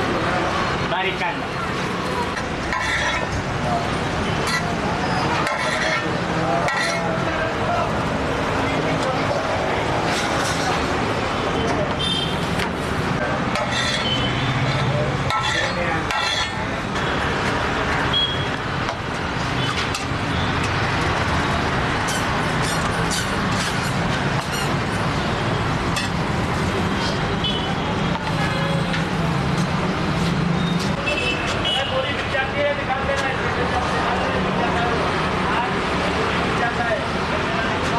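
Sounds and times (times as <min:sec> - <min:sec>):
indistinct voices: 0:00.0 - 0:37.9
traffic noise: 0:00.0 - 0:37.9
metal spatula clinking on griddle: 0:05.4 - 0:07.1, 0:15.3 - 0:16.6.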